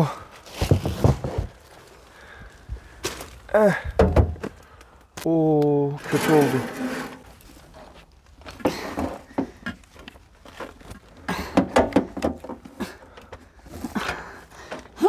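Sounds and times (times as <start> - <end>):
knocks and clicks of handling: 8.6 - 13.5.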